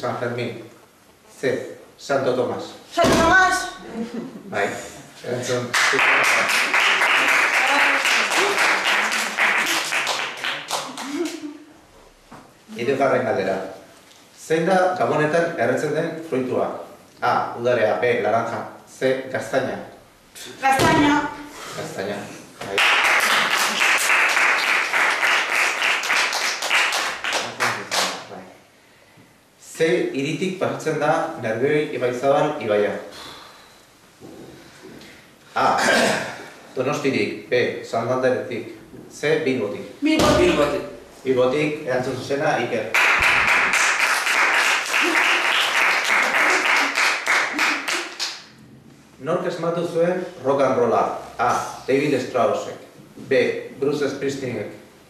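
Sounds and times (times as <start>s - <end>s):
applause: 5.7s - 11.4s, 22.7s - 28.2s, 42.9s - 48.4s.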